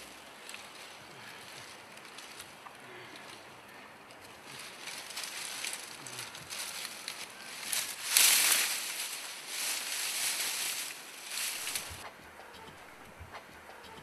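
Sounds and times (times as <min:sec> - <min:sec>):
dry maize stalks rustling: 0:00.0 - 0:12.1.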